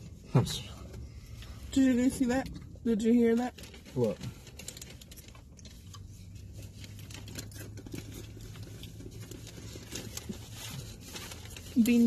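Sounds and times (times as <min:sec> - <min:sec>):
low hum inside car: 0:00.0 - 0:12.0
plastic packaging crinkling: 0:03.0 - 0:12.0.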